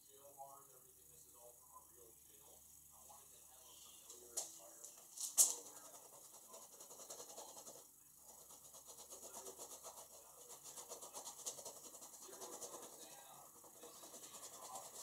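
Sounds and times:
paintbrush scrubbing on canvas: 5.5 - 15.0.

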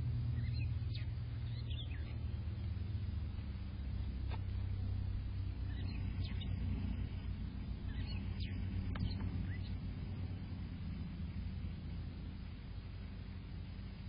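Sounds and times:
small birds chirping: 0.0 - 14.0
steady low rumble: 0.0 - 14.0.

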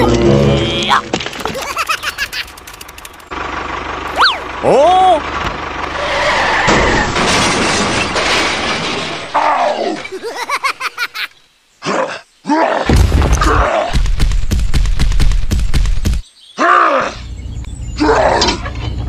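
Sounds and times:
crashing shattering noise: 6.4 - 10.4
grunting voice bursts: 11.8 - 14.0
low rumble with rapid knocks: 12.9 - 16.2.

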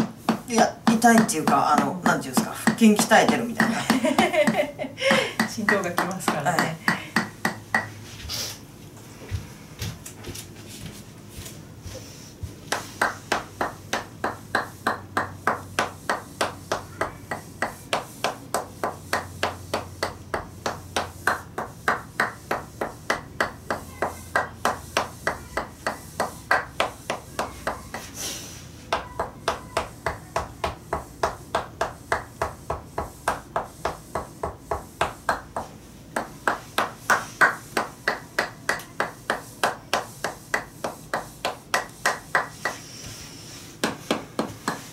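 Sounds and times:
wooden mallet knocking on wedge: 0.0 - 7.9, 12.7 - 28.1.

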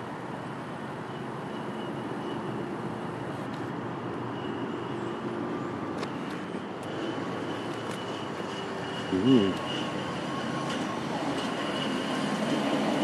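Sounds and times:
truck engine hum: 0.0 - 13.0
faint high squeal: 1.1 - 2.6, 4.2 - 6.3
wheels rolling on rails: 5.9 - 13.0.

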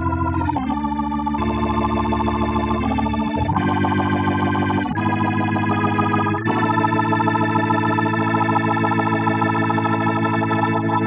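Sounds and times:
organ chords: 0.0 - 11.0.

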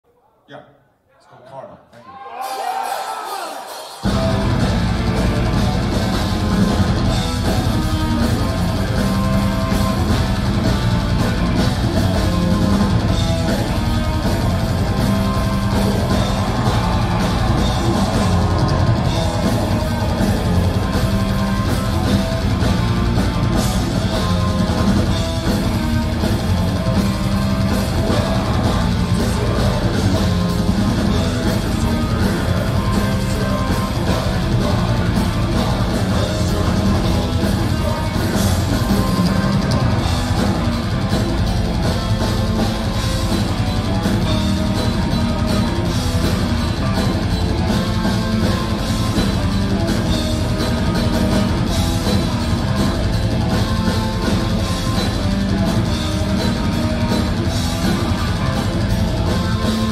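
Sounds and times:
drum kit: 2.4 - 59.9
distorted electric guitars: 3.6 - 59.9.

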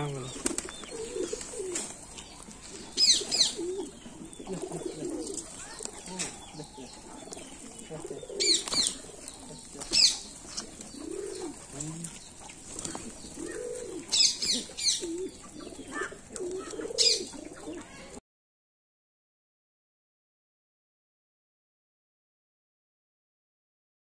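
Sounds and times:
birds chirping: 0.0 - 18.2
pigeons cooing: 0.0 - 18.2.

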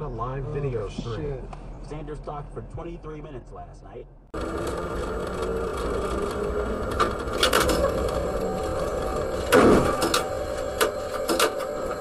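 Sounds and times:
tram hum and rattle: 4.4 - 12.0.

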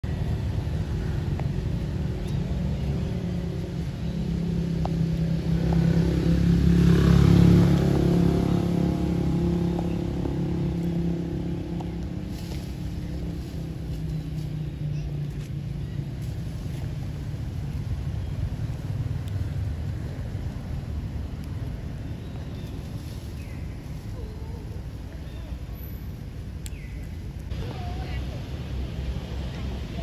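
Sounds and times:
motor engine humming: 0.0 - 22.4.

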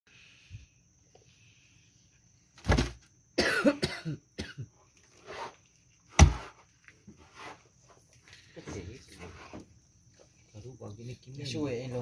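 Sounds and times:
person clearing throat: 3.4 - 4.7
person coughing: 3.4 - 4.7.

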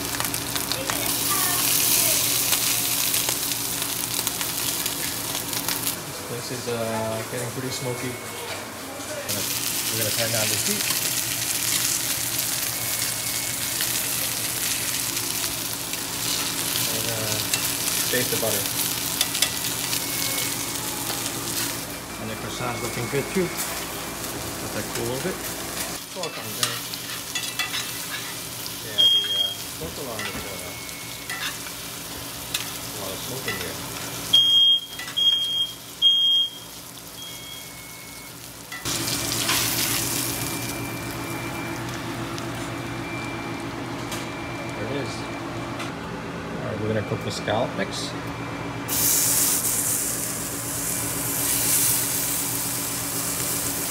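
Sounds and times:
steak sizzling in a pan: 0.0 - 6.0, 9.3 - 22.0, 38.2 - 41.9, 48.9 - 53.9
smoke alarm beeping: 7.1 - 8.8, 9.6 - 15.7, 17.4 - 25.2, 28.8 - 32.2, 34.2 - 45.8.

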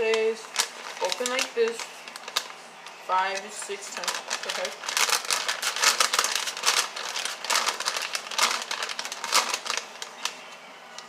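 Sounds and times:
paper bag crinkling: 0.1 - 10.5
hard pellets rattling in a bag: 3.5 - 10.1.

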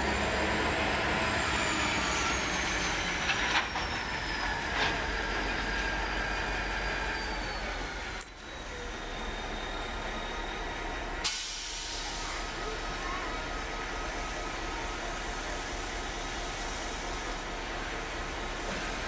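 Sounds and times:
freight train rolling past: 0.0 - 19.0.

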